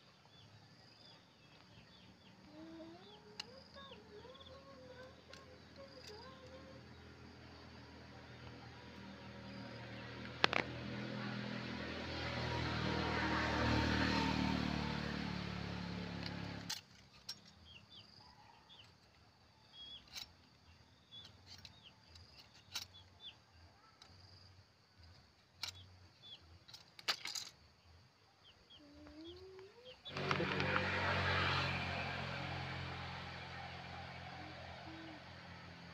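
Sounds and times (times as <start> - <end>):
faint bird chirps: 27.8 - 30.5.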